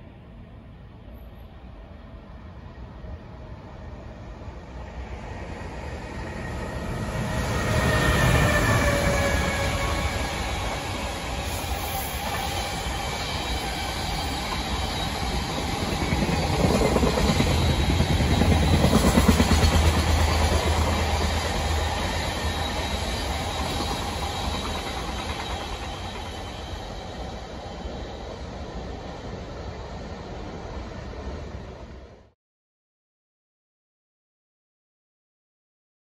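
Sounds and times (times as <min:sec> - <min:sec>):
train wagons rolling on rails: 0:05.8 - 0:32.0.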